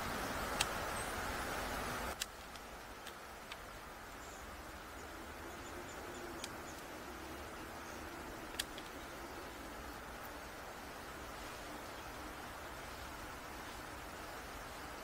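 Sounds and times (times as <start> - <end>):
faint clicks: 0.5 - 0.8, 2.1 - 3.7, 6.3 - 6.9, 8.5 - 9.2.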